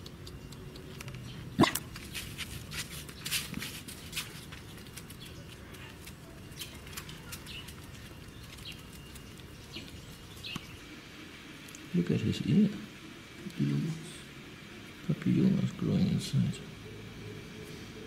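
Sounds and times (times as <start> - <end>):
short chirps and ticks: 0.0 - 1.8.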